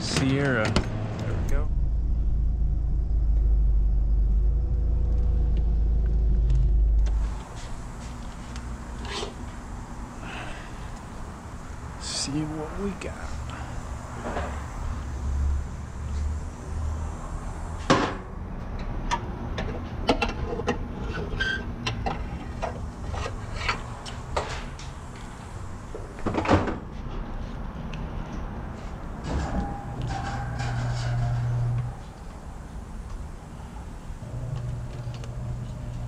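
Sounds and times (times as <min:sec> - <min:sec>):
low hum: 0:01.0 - 0:18.4, 0:29.0 - 0:36.0.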